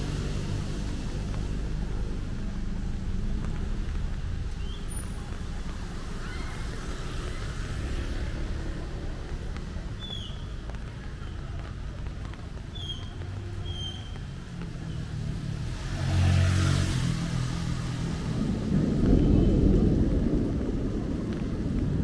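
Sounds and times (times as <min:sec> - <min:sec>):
city street traffic rumble: 0:00.0 - 0:22.0.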